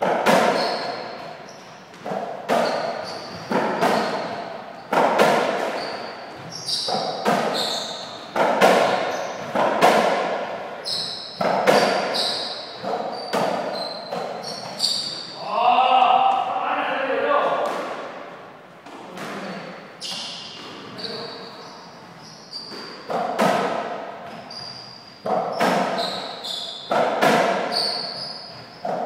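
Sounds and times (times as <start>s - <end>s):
shoe squeaks: 0.3s - 9.6s, 10.8s - 15.4s, 19.4s - 23.4s, 24.3s - 29.0s
ball hit by rackets: 4.9s - 5.9s, 6.9s - 7.6s, 8.3s - 10.5s, 11.4s - 12.2s, 22.7s - 24.0s, 25.2s - 26.1s, 26.9s - 27.8s.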